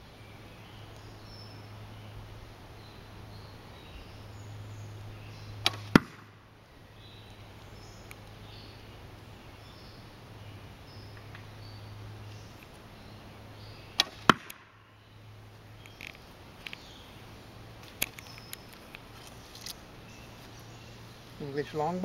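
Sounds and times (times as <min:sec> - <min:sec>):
bowstring release crack: 0:05.6 - 0:06.3, 0:14.0 - 0:14.7, 0:17.8 - 0:19.8.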